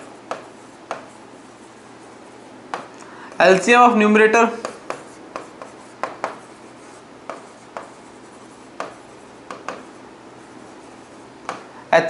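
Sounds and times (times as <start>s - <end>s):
pen tapping and scratching: 0.0s - 3.8s, 4.6s - 10.0s, 10.8s - 11.7s.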